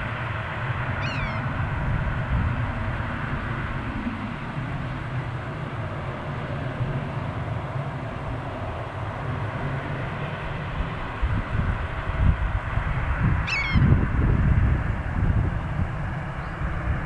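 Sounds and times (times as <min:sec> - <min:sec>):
low outdoor rumble: 0:00.0 - 0:17.0
short falling bird call: 0:01.0 - 0:01.4, 0:13.5 - 0:13.8.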